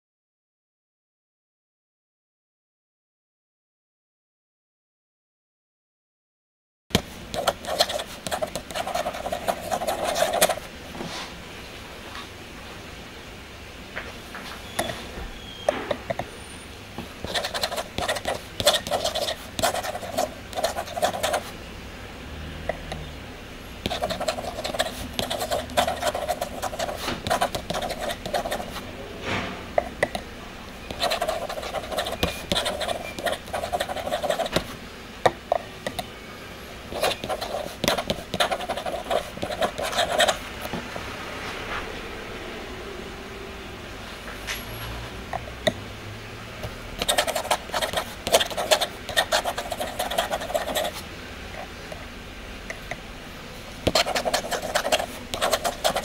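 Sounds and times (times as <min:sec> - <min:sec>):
pen nib scratching paper: 0:07.3 - 0:10.6, 0:17.2 - 0:21.5, 0:23.8 - 0:28.8, 0:30.9 - 0:34.7, 0:36.9 - 0:40.4, 0:47.0 - 0:51.0, 0:53.9 - 0:56.0.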